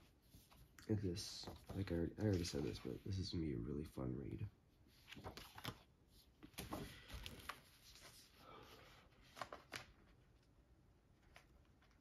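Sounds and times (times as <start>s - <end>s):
paper pages rustling: 0.3s - 3.2s, 4.9s - 10.5s.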